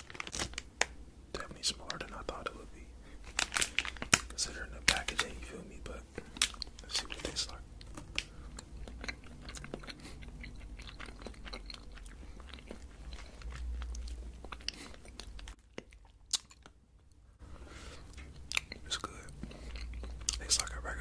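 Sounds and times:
chewing cake: 6.2s - 17.2s, 18.0s - 21.0s.

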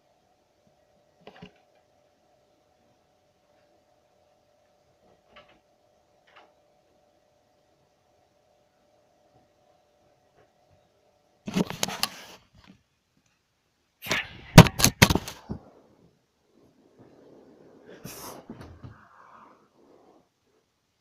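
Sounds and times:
camera rustling: 11.5s - 12.7s, 14.1s - 15.8s
faint shuffle: 15.2s - 20.7s.

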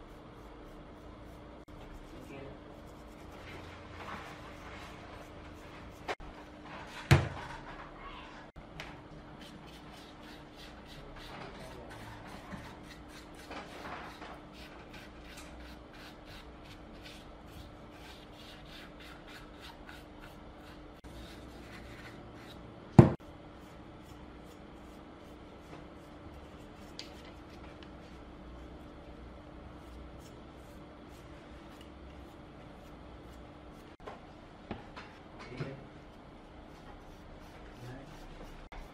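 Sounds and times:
paintbrush scrubbing: 0.0s - 6.2s, 9.4s - 22.6s, 23.6s - 28.1s, 29.8s - 34.0s, 36.6s - 38.9s.

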